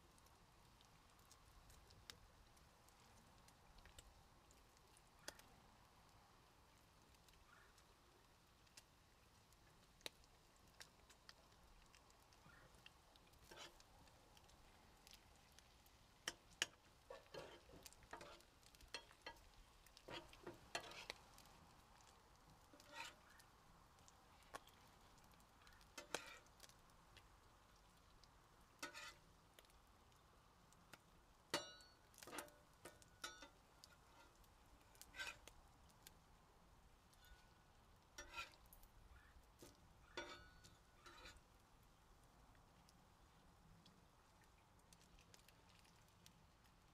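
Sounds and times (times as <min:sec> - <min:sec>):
bacon sizzling: 0:00.0 - 0:46.9
grease popping: 0:00.0 - 0:46.9
spatula scraping griddle: 0:13.4 - 0:13.8, 0:16.3 - 0:21.2, 0:22.7 - 0:23.4, 0:26.0 - 0:26.5, 0:28.8 - 0:29.2, 0:31.5 - 0:35.5, 0:38.2 - 0:38.7, 0:40.1 - 0:41.4.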